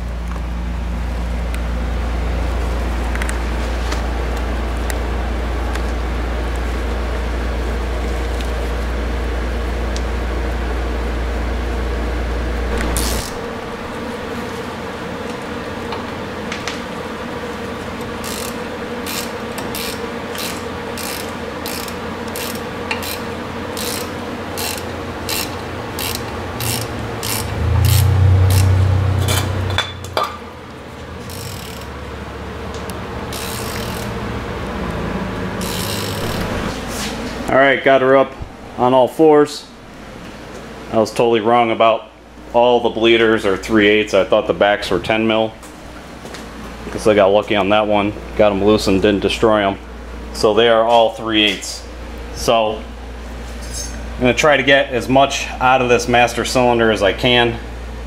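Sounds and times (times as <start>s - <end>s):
low rumble: 12.6s - 14.7s, 36.2s - 40.9s
hand ratchet clicking: 18.2s - 28.7s, 31.3s - 31.9s, 33.3s - 34.2s, 35.6s - 36.4s.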